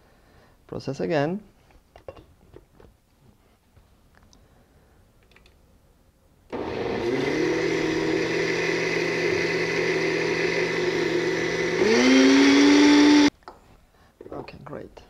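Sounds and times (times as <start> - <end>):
blender motor running: 6.5 - 13.3.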